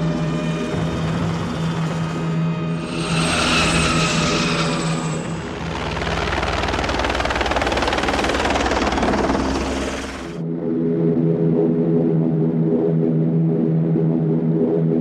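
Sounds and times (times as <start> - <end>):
rotor beating: 0.0 - 10.4
high jet-like whine: 0.3 - 5.9.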